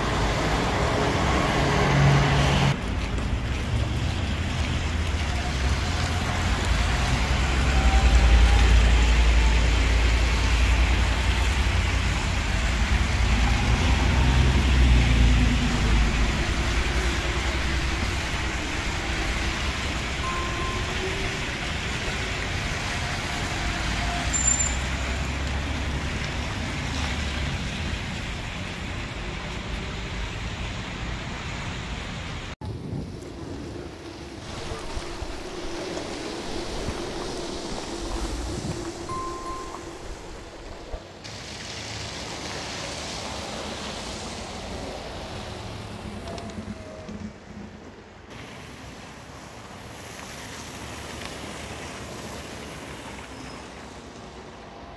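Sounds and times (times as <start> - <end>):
buses rumbling on wet street: 0.0 - 54.9
traffic noise: 0.0 - 54.9.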